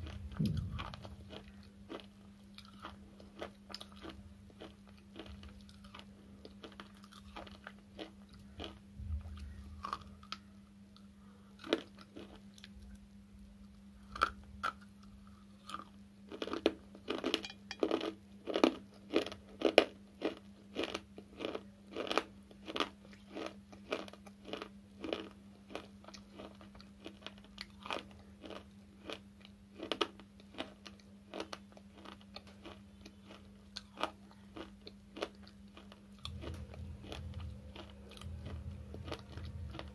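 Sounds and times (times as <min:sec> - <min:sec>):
dry crunching of chewed chips: 0:00.0 - 0:39.9.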